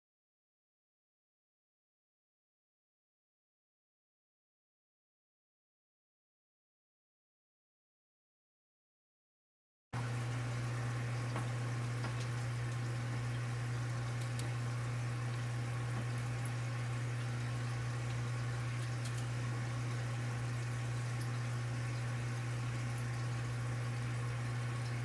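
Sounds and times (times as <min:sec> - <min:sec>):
steady low hum: 0:10.0 - 0:25.0
faint clicks: 0:14.2 - 0:14.6, 0:18.8 - 0:19.3.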